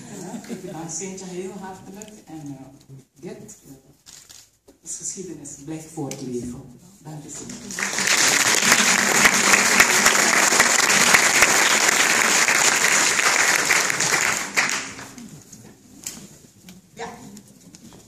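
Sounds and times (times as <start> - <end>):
audience applauding: 7.6 - 15.3.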